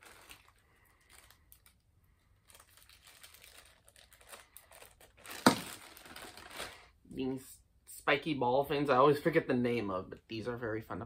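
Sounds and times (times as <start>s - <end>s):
plastic packaging crinkling: 0.0s - 7.0s.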